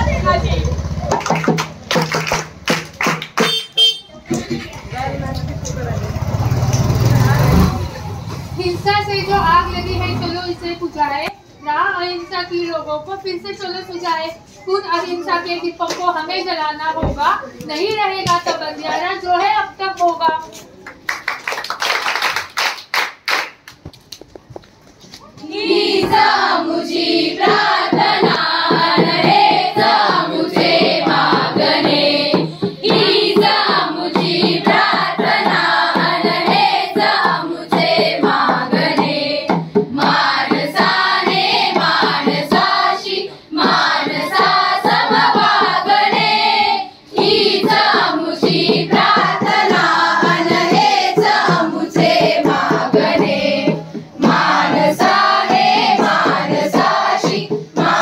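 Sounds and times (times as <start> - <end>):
hands clapping in time: 1.1 - 4.5
group singing: 25.4 - 58.0.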